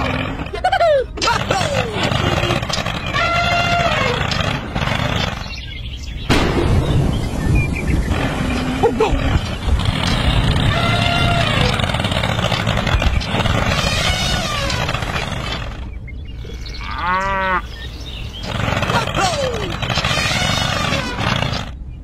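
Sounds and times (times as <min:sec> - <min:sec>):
drawn-out pitched calls: 0:00.0 - 0:05.8, 0:08.1 - 0:21.8
tractor engine running: 0:08.0 - 0:16.0.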